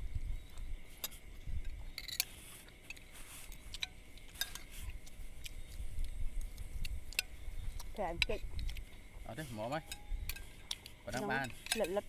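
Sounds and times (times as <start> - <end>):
spoons clinking against plates: 1.0 - 4.7, 9.7 - 12.0.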